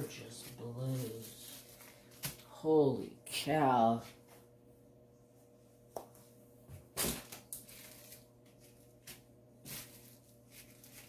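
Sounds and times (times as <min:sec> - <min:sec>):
faint steady hum: 0:00.0 - 0:11.0
plastic bags tapping and crinkling: 0:00.4 - 0:02.5, 0:07.0 - 0:11.0.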